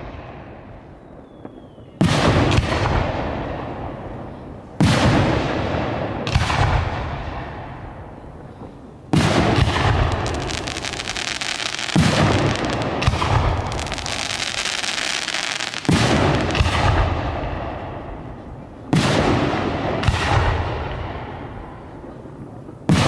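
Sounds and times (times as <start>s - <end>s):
firework shells bursting: 8.6s - 17.2s.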